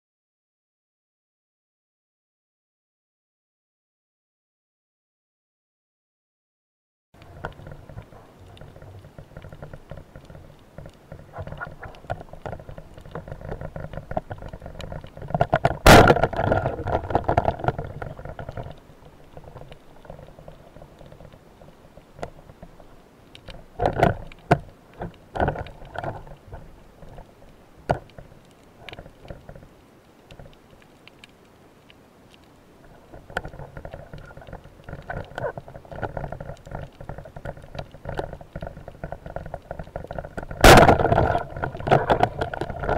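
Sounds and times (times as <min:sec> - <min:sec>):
churning water noise: 0:07.2 - 0:29.7, 0:32.8 - 0:42.9
underwater hiss and rumble: 0:07.2 - 0:42.9
sharp knocks and clicks: 0:07.4 - 0:20.3
speargun firing crack: 0:15.9 - 0:16.5.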